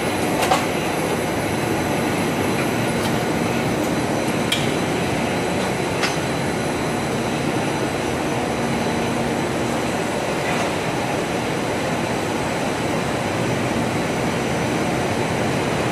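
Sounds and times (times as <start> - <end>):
machine rollers running: 0.0 - 15.9.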